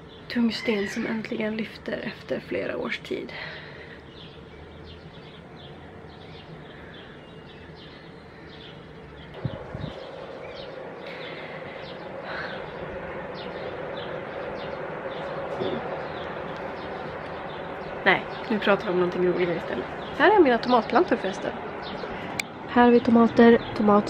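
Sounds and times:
small birds chirping: 0.0s - 24.0s
steady low hum: 0.0s - 24.0s
low thumps: 9.3s - 21.9s.

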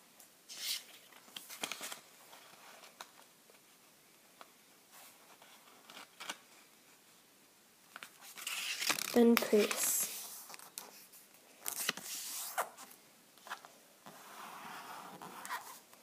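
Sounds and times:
paper rustling as it is folded: 0.5s - 3.3s, 7.9s - 16.0s.

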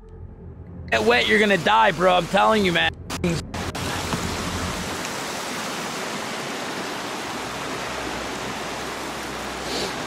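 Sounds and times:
stream rushing over rocks: 3.6s - 10.0s.

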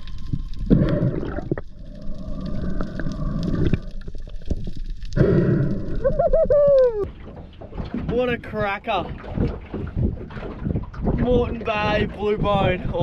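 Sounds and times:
water rushing and gurgling: 0.0s - 13.0s
muffled voice whooping underwater: 6.0s - 7.1s.

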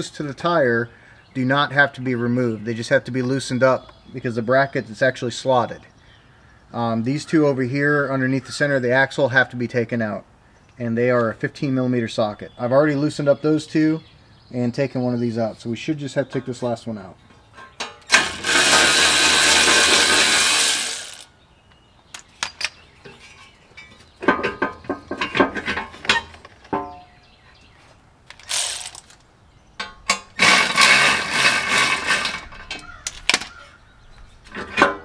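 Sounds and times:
cordless power tool spinning: 18.1s - 21.3s, 28.3s - 29.2s, 30.4s - 32.5s
metal knocks and clinks: 22.4s - 27.1s.

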